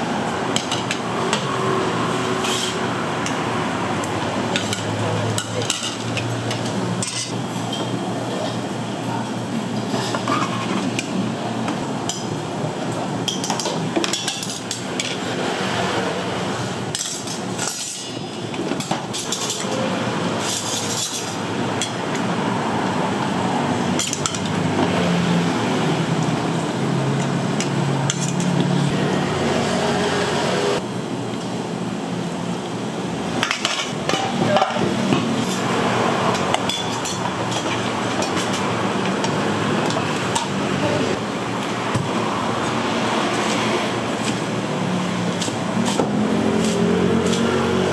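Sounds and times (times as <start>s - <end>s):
utensils clinking against pots and bowls: 0.5s - 3.4s, 4.5s - 8.6s, 13.2s - 15.3s, 16.9s - 22.3s, 23.9s - 25.0s, 27.2s - 28.8s, 33.4s - 42.1s, 45.3s - 47.6s.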